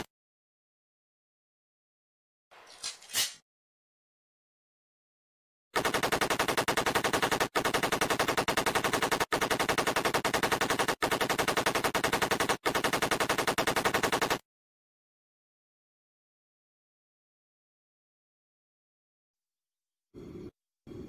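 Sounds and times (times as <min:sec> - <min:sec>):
submachine gun automatic fire: 0:05.8 - 0:14.4.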